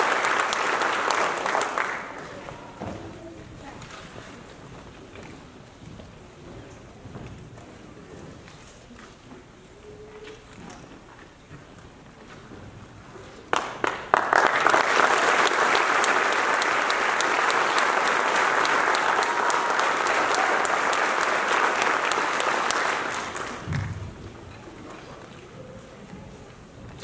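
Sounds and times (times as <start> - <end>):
audience applauding: 0.0 - 2.6, 13.5 - 24.0.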